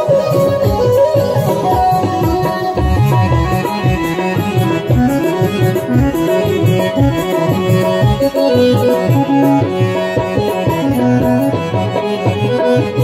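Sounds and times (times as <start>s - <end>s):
tabla drumming: 0.0s - 13.0s
violin-like melody: 0.0s - 13.0s.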